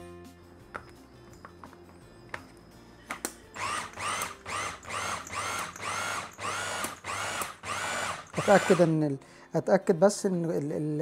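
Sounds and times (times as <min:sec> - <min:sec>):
electric chopper motor whine: 0:03.6 - 0:08.9.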